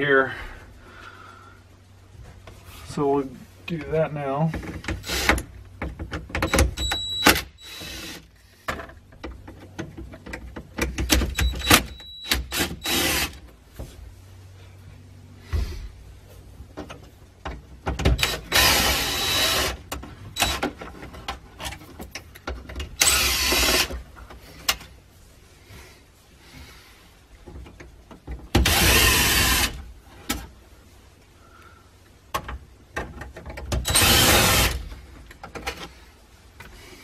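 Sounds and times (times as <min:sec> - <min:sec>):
cordless drill running: 0:12.5 - 0:13.4, 0:18.2 - 0:19.8, 0:23.0 - 0:23.9, 0:28.6 - 0:29.8, 0:33.9 - 0:34.8.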